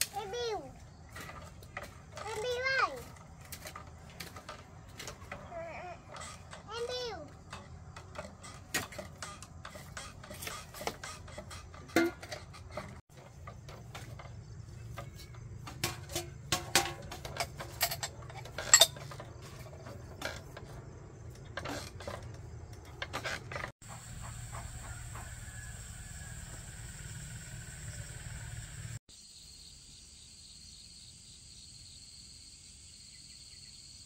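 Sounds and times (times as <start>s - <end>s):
dishes and utensils clinking: 14.9s - 20.4s.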